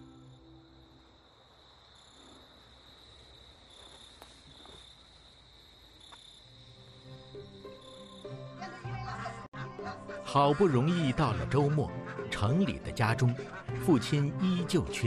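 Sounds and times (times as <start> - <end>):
crickets trilling: 0.0 - 8.6.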